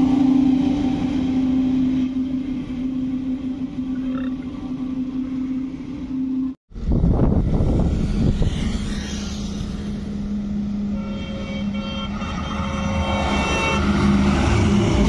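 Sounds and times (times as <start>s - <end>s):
diesel engine drone: 0.0s - 15.0s
heavy trucks passing on highway: 0.0s - 15.0s
vehicle horn honks: 10.9s - 13.8s.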